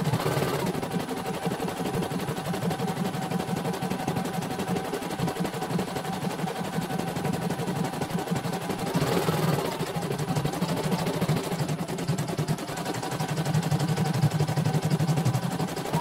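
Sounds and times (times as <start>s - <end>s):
motor hum: 8.6s - 16.0s.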